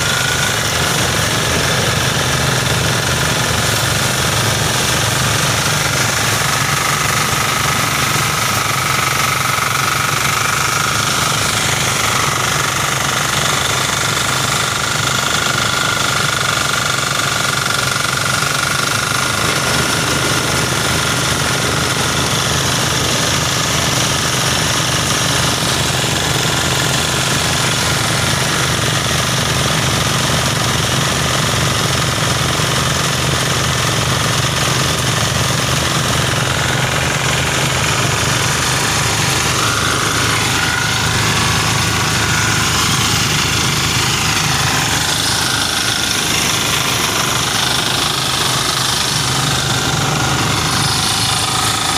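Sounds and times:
rice thresher engine running: 0:00.0 - 0:51.9.

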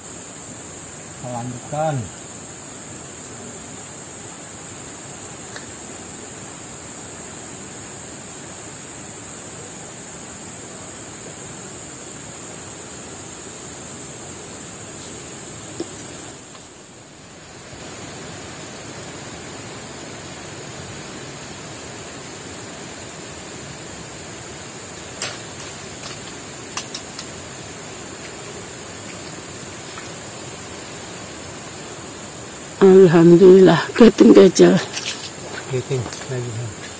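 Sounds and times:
high-pitched hiss: 0:00.0 - 0:36.9
rushing river water: 0:14.0 - 0:32.8.

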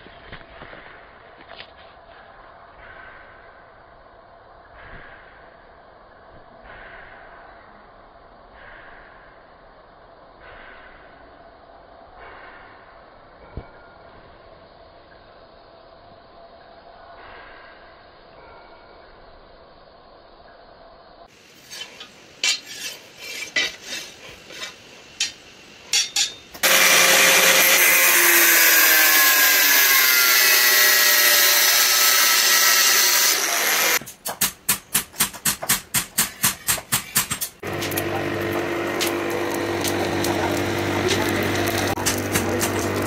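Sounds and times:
power tool grinding steel: 0:21.6 - 0:24.8, 0:26.0 - 0:34.0, 0:37.6 - 0:43.0
scrapes and knocks on steel: 0:21.6 - 0:26.5
motor humming: 0:26.6 - 0:34.0, 0:37.6 - 0:43.0.

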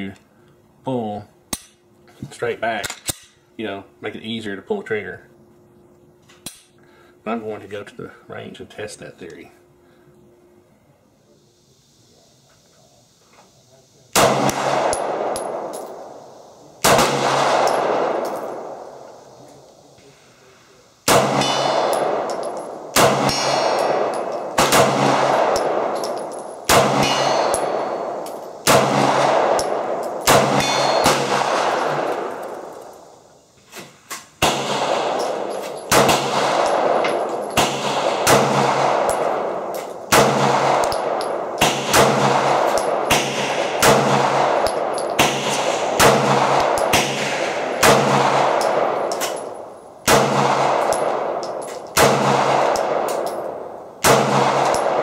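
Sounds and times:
pistol shots with echo: 0:14.1 - 0:19.5, 0:21.0 - 0:33.1, 0:34.4 - 0:55.0.

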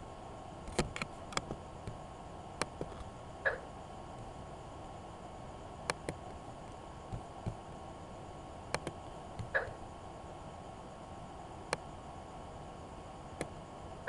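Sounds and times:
low room hum: 0:00.0 - 0:14.0
computer mouse clicks: 0:08.7 - 0:09.7.

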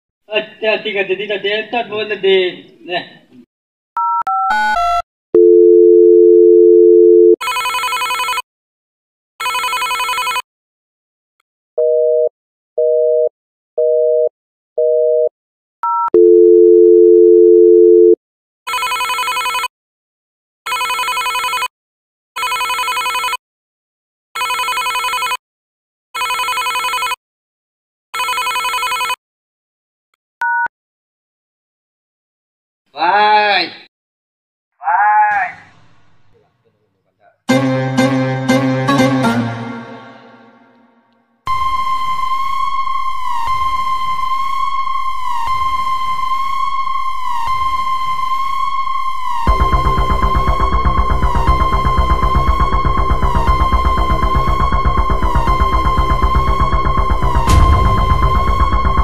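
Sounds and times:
telephone dial tone: 0:04.0 - 0:08.4, 0:09.4 - 0:10.4, 0:14.0 - 0:19.7, 0:20.7 - 0:21.7, 0:22.4 - 0:23.4, 0:24.4 - 0:25.4, 0:26.2 - 0:27.2, 0:28.2 - 0:29.2
telephone ringing tones: 0:04.0 - 0:08.4, 0:09.4 - 0:10.4, 0:11.8 - 0:19.7, 0:20.7 - 0:21.7, 0:22.4 - 0:23.4, 0:24.4 - 0:25.4, 0:26.2 - 0:27.2, 0:28.2 - 0:29.2.

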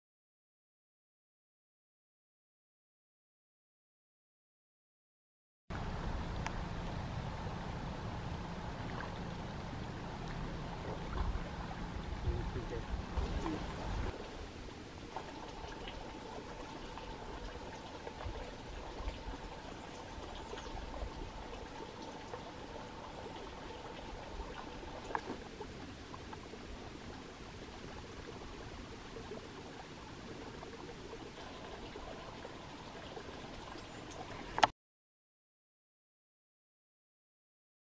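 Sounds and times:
water trickling: 0:05.7 - 0:34.7.

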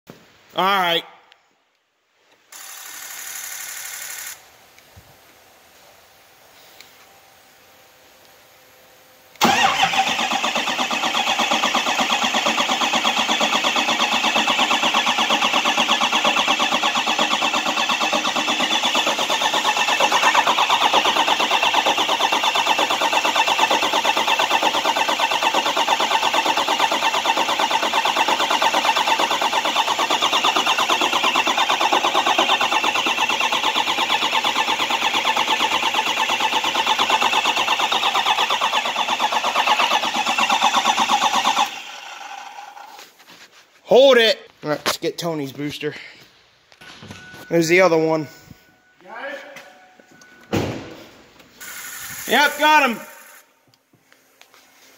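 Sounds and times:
diesel engine cranking: 0:09.4 - 0:43.0.

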